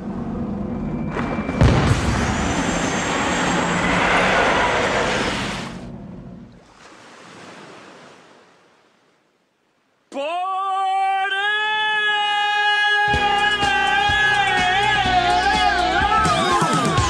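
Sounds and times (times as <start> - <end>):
rushing noise: 0.0 - 6.5
singer holding high note: 12.7 - 17.0
music track with beat: 13.1 - 17.0.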